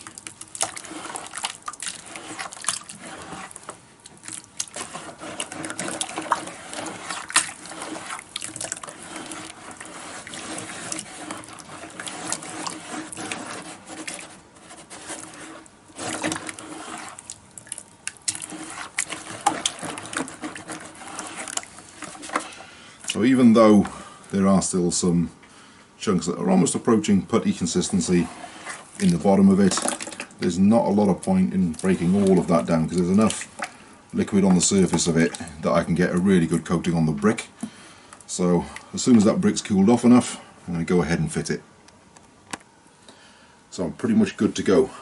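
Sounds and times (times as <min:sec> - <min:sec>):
hand sloshing wet clay in bucket: 0:00.0 - 0:24.1, 0:26.2 - 0:40.3.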